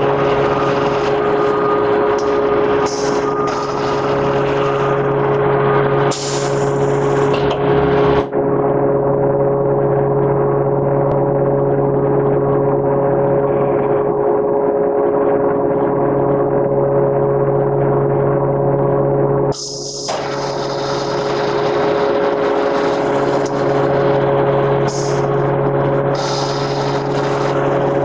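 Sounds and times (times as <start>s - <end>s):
factory machinery drone: 0.0s - 28.0s
high hiss: 6.1s - 6.7s, 24.9s - 25.2s, 26.2s - 27.8s.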